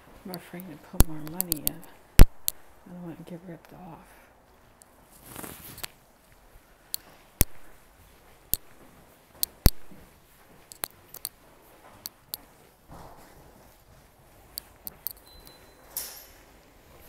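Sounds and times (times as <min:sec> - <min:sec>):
sharp clicks and knocks: 0:09.4 - 0:10.0, 0:10.7 - 0:11.4.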